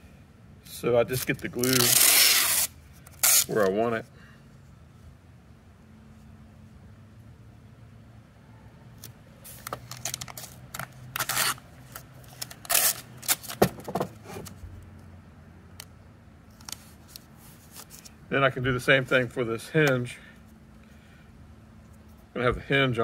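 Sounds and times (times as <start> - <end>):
tape ripping off roll: 1.1 - 3.6, 9.0 - 14.6.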